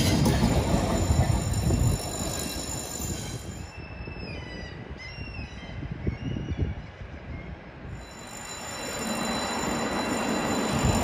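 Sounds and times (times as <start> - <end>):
high wheel squeals: 0.0 - 4.7, 7.9 - 11.0
train coaches rumbling past: 0.0 - 5.7, 6.9 - 11.0.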